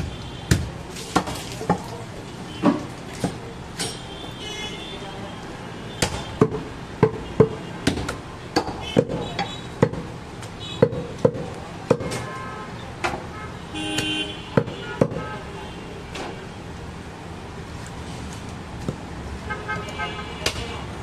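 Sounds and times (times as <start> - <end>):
knife chopping on wooden block: 10.8 - 12.2
vehicle horn: 12.2 - 16.6, 19.5 - 20.9.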